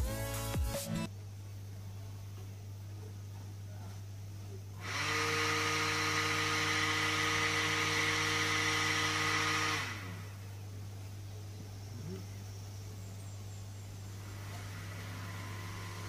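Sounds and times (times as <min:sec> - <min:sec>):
low steady hum: 0:01.0 - 0:04.8, 0:09.0 - 0:16.0
fan motor whining: 0:04.4 - 0:16.0.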